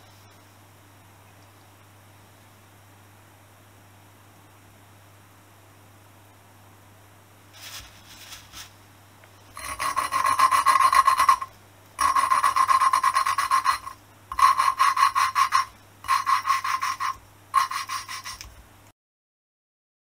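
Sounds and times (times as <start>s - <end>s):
valve grinding on its seat: 9.6s - 18.5s.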